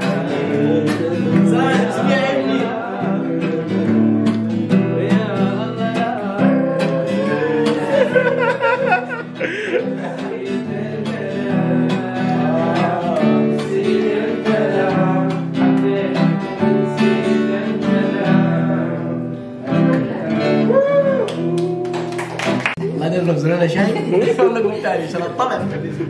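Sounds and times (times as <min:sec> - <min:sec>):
voices singing along: 0:00.0 - 0:22.2
acoustic guitar strumming: 0:00.0 - 0:23.4.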